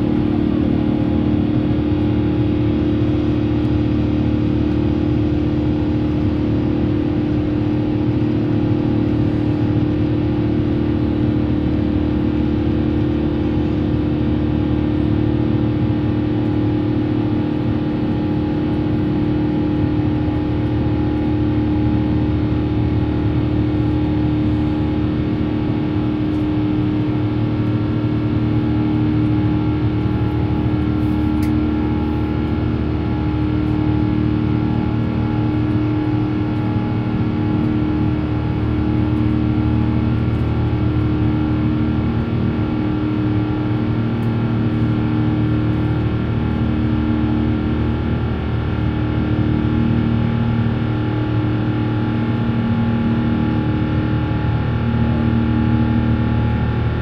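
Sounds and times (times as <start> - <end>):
jet engines droning in cabin: 0.0 - 57.0.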